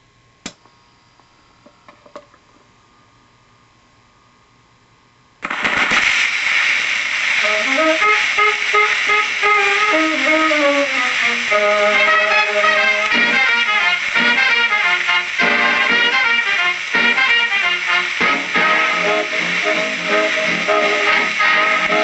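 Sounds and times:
record surface hiss: 0:00.0 - 0:22.0
swing big band music on record: 0:07.2 - 0:22.0.

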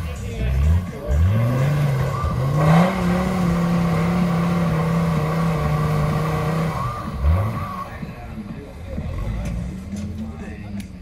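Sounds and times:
truck engine revving hard: 0:00.0 - 0:08.1.

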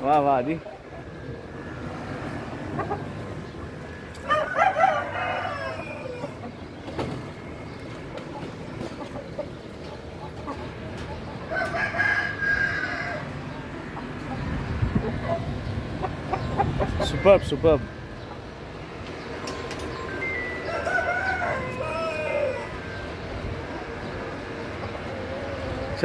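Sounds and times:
rooster crowing: 0:04.2 - 0:06.4, 0:11.5 - 0:13.4, 0:20.5 - 0:23.0.

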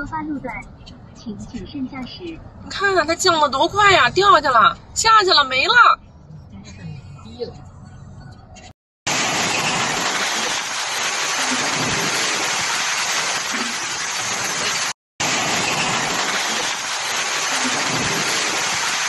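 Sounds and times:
heavy rain: 0:09.1 - 0:19.0.

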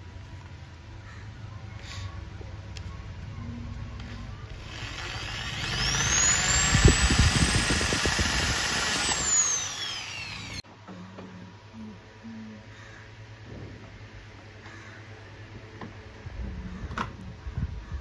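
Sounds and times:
power drill whining: 0:04.5 - 0:10.6.

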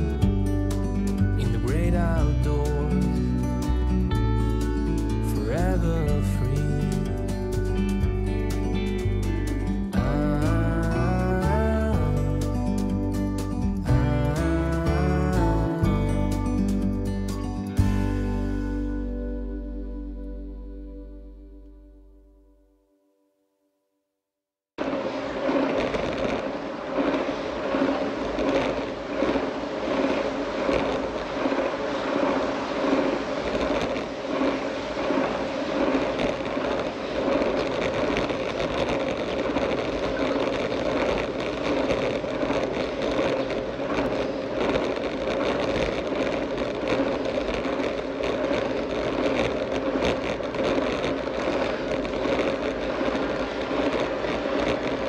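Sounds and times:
bike drivetrain and tyres humming: 0:24.9 - 0:55.0.

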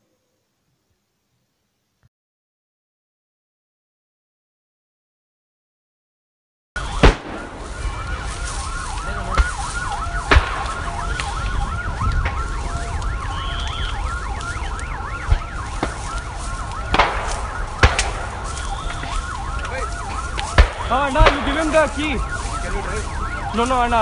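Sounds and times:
sharp bangs: 0:06.8 - 0:08.4, 0:09.2 - 0:12.5, 0:13.2 - 0:22.6
emergency sirens wailing: 0:06.8 - 0:24.0.

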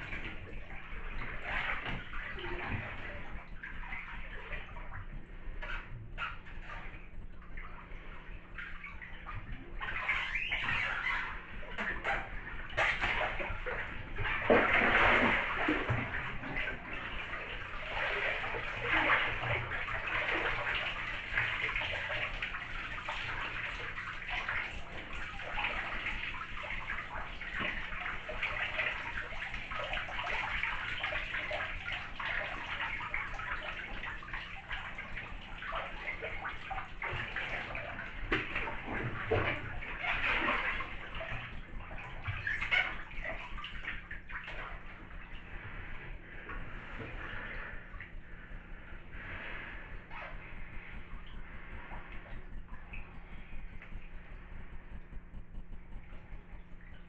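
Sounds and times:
bathwater sloshing and splashing: 0:00.0 - 0:57.0.

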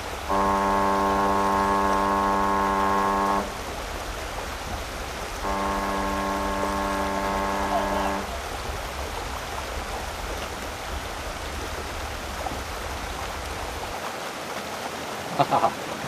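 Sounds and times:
outdoor ambience hiss: 0:00.0 - 0:16.0
brief voice: 0:07.6 - 0:08.4.

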